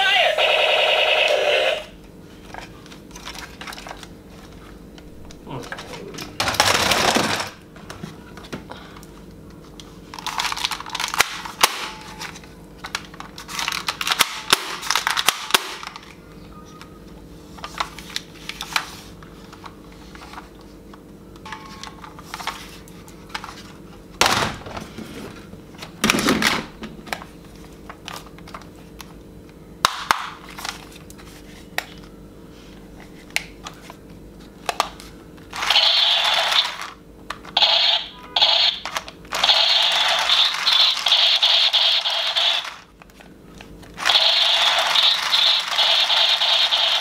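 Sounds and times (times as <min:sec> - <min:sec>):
plastic toy guns clattering: 0:06.4 - 0:07.6
electronic toy gun firing effect: 0:35.6 - 0:36.9, 0:37.6 - 0:42.8, 0:44.0 - 0:47.0.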